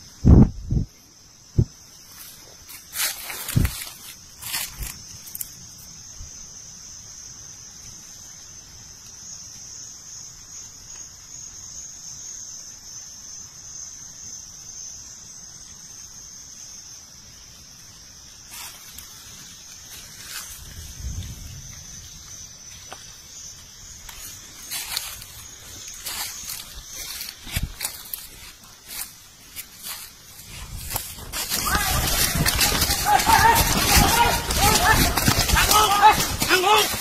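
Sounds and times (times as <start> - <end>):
insect chorus drone: 0.0 - 37.0
rustles and knocks in leaves: 1.6 - 5.6, 23.9 - 37.0.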